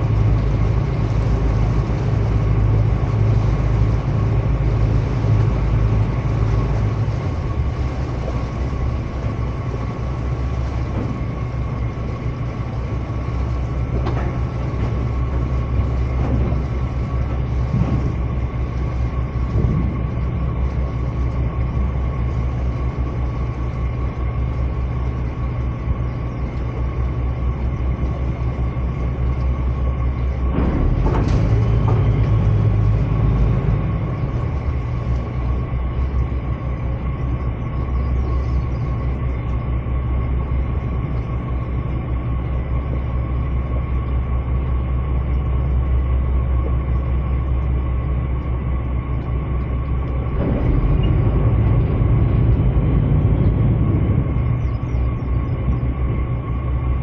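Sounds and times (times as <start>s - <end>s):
boat diesel engine drone: 0.0s - 57.0s.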